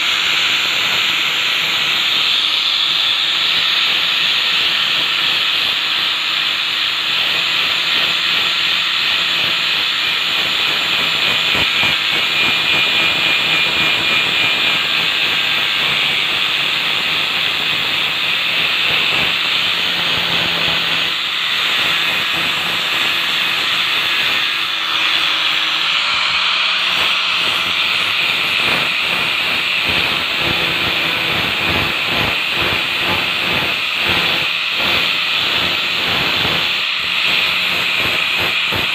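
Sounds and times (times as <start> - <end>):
angle grinder sanding metal: 0.0 - 38.9.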